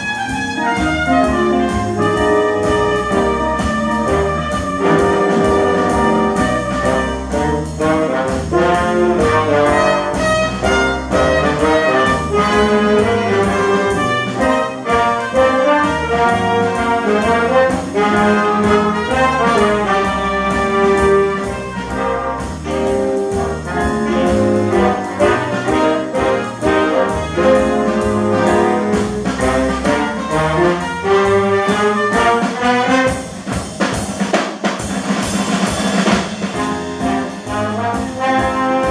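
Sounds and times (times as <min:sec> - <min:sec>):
saxophones and brass: 0:00.0 - 0:33.6, 0:36.5 - 0:38.9
big band swing jazz: 0:00.0 - 0:38.9
piano: 0:00.0 - 0:38.9
steady drum beat: 0:00.0 - 0:38.9.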